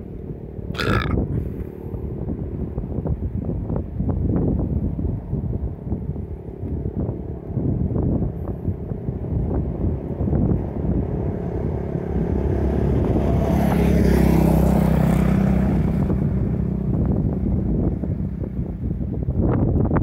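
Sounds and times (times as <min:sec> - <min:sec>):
quad bike driving past: 0:10.3 - 0:18.8.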